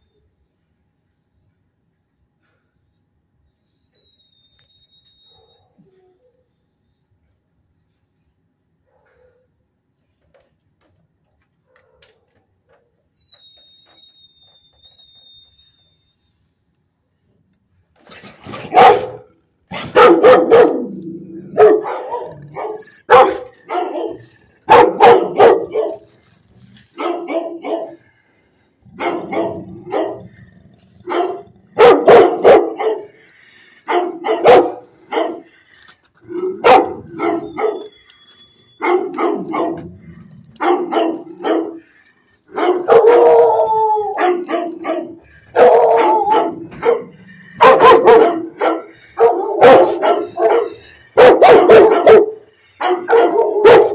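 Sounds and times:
dogs barking: 18.5s - 28.2s, 28.8s - 38.1s, 38.8s - 53.9s
dog howling: 28.8s - 33.1s, 36.2s - 41.8s, 42.5s - 53.9s.

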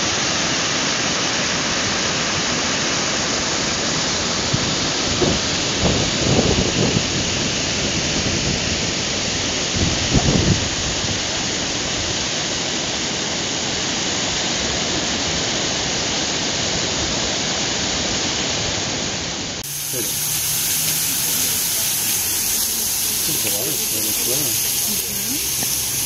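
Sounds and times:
water rushing over rocks: 19.6s - 26.0s.

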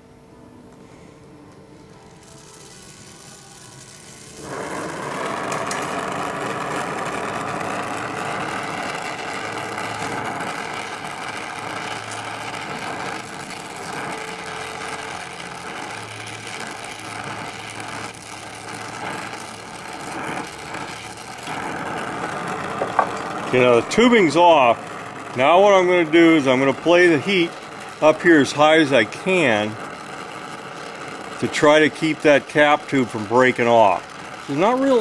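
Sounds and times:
torch flame hissing: 1.9s - 35.0s.

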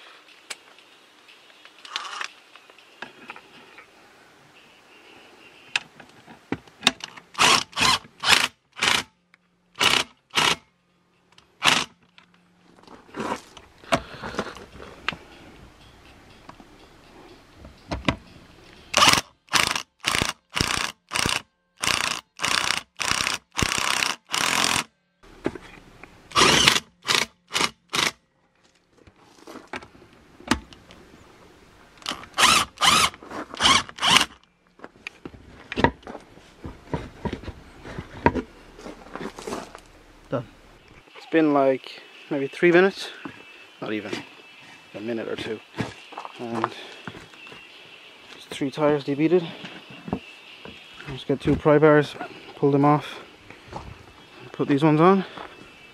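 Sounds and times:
power drill bursts: 7.4s - 9.0s, 9.8s - 10.6s, 11.6s - 11.9s, 18.9s - 24.9s, 26.3s - 28.1s, 32.1s - 34.4s.

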